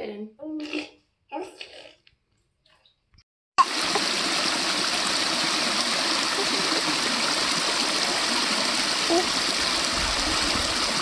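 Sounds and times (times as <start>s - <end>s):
creek water over stones: 3.6s - 11.0s.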